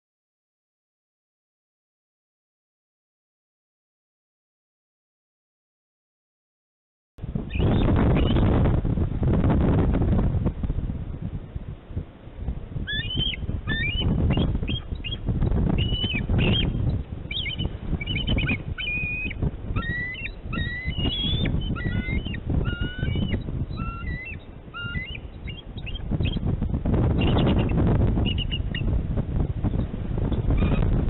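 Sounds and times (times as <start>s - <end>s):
wind buffeting microphone: 7.2s - 31.0s
eagles chirping alert calls: 12.9s - 26.5s, 27.2s - 28.9s.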